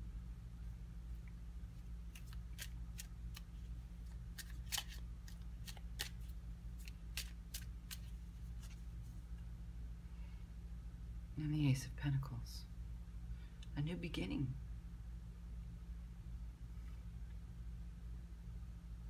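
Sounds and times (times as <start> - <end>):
low hum: 0.0 - 19.0
cards shuffling: 1.8 - 9.2.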